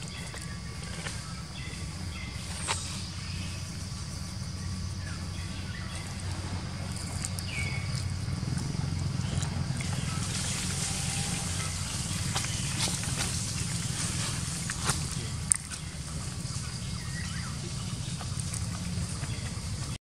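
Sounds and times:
low hum with hiss: 0.0 - 20.0.

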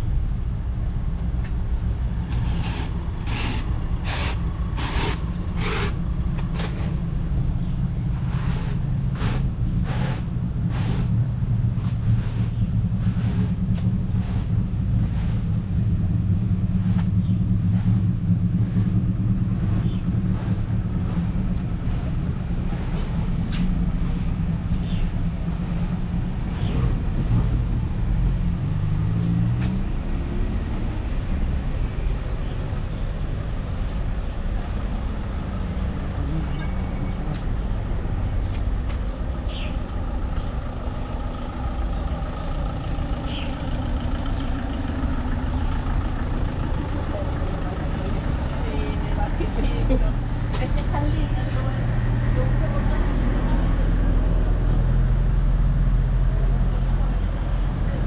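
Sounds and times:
vehicle engine running: 0.0 - 58.0
footsteps on pavement: 29.4 - 29.9.

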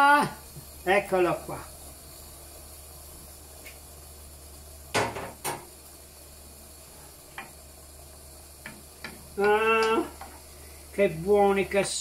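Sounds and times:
sauce bubbling: 0.0 - 11.0
boiling water hissing: 0.0 - 12.0
utensils knocking on frying pan: 4.9 - 5.7, 8.6 - 10.4.

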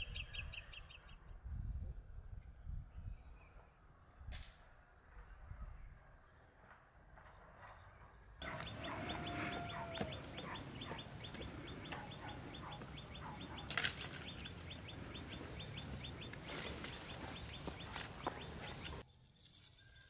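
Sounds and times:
steady low rush: 8.4 - 19.0.

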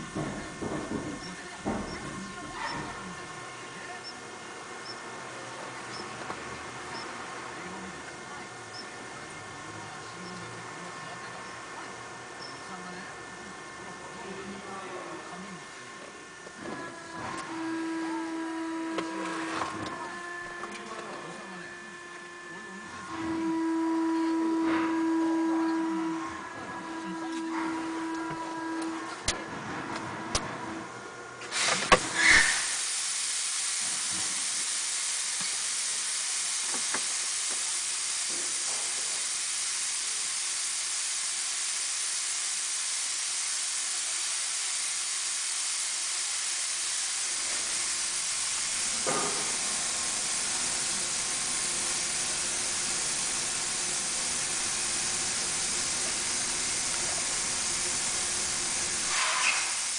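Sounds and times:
compressed air hissing: 31.5 - 59.9.

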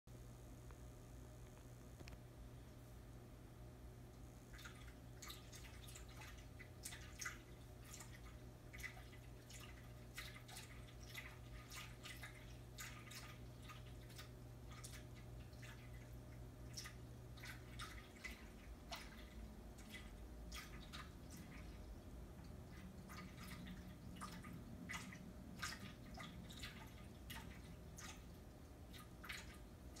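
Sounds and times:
cat lapping water: 4.4 - 30.0
water fountain trickling: 4.5 - 30.0.

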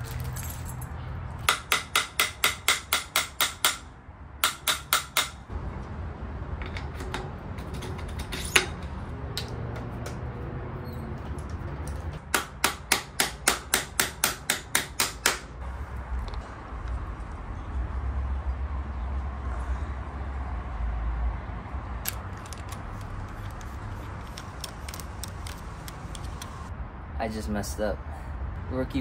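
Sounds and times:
hammer tapping metal: 1.5 - 5.4.

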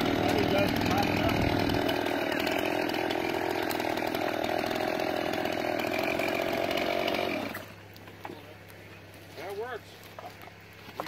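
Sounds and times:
chainsaw running: 0.0 - 7.9.

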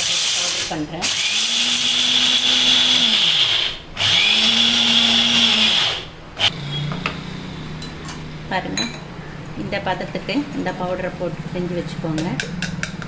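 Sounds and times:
mixer grinder motor whining: 0.0 - 8.2.

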